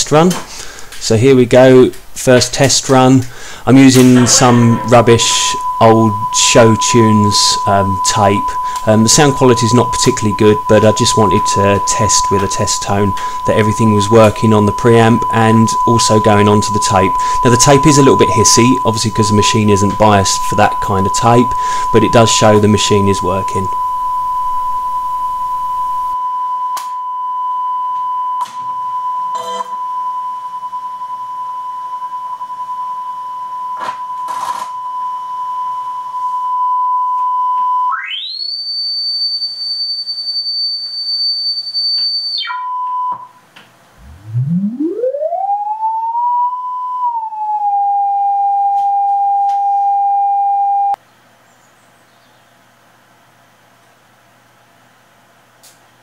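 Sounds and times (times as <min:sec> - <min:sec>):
tape hiss: 0:00.0 - 0:26.2
steady test tone: 0:03.7 - 0:26.2, 0:44.0 - 0:48.1
tone gliding up: 0:03.7 - 0:26.2, 0:44.0 - 0:48.4
high whistle-like tone: 0:03.9 - 0:39.6, 0:41.6 - 0:43.4, 0:44.0 - 0:51.0.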